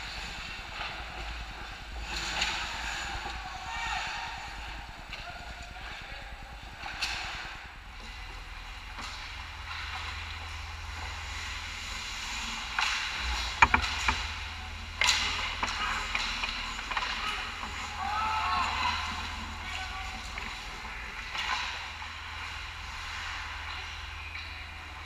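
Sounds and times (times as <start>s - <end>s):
steady low hum: 0.0s - 25.0s
skates scraping ice: 8.1s - 24.6s
hockey sticks and puck clacking: 8.8s - 24.6s.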